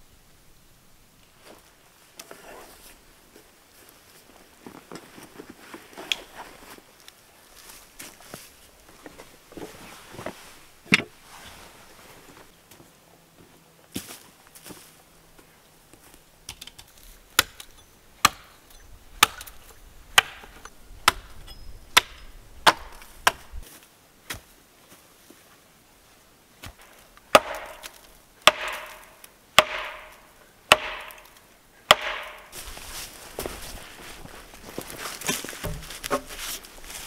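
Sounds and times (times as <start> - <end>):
axe chopping tree trunk: 17.3 - 18.5, 19.2 - 21.4, 22.0 - 23.6, 26.6 - 32.6.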